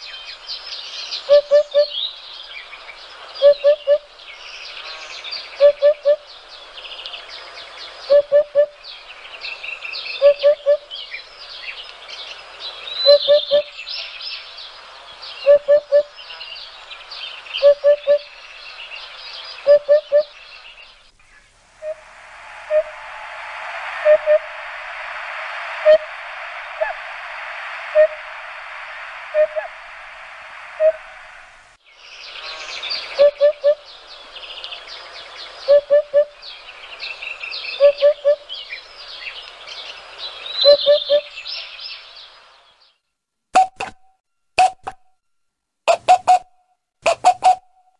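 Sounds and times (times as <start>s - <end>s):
low hooting bird call: 1.1s - 2.2s, 3.3s - 4.1s, 5.4s - 6.3s, 7.9s - 42.3s
steady rushing noise: 18.3s - 35.7s
small birds chirping and trilling: 31.9s - 35.8s.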